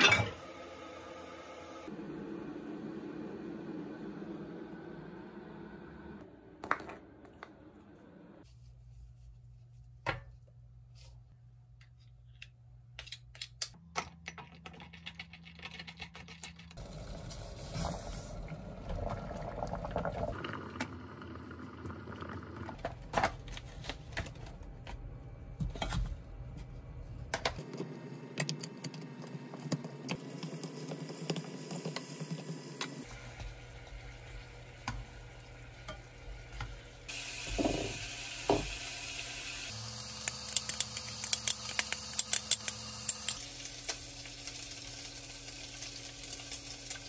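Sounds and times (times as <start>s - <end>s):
water boiling: 16.8s - 22.8s, 29.2s - 47.0s
meat sizzling in frying pan: 33.1s - 41.8s, 42.6s - 47.0s.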